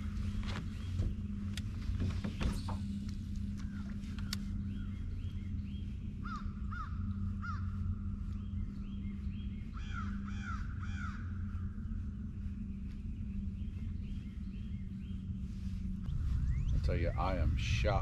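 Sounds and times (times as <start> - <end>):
high bird calls: 0.0 - 18.0
steady low hum: 0.0 - 18.0
crows cawing: 6.2 - 7.8, 9.8 - 11.6.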